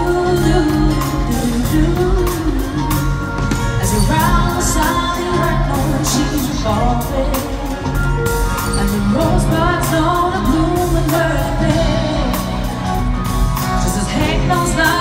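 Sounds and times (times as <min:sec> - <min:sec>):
live pop band playing: 0:00.0 - 0:15.0
person singing: 0:00.0 - 0:15.0.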